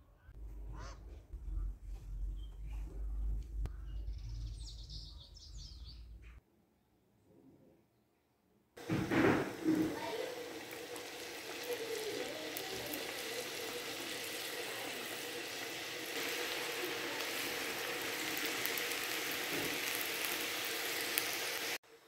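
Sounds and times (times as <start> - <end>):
deep-frying sizzling and bubbling: 8.8 - 22.0.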